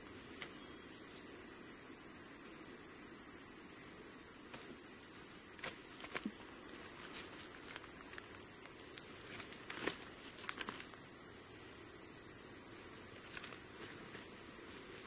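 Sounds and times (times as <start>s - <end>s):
twigs snapping: 5.6s - 11.0s, 13.2s - 14.4s.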